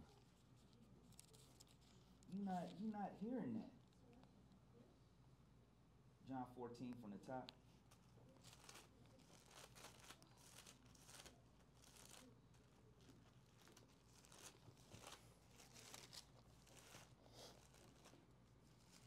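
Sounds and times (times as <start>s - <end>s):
pages rustling: 0.0s - 2.8s, 7.8s - 19.0s.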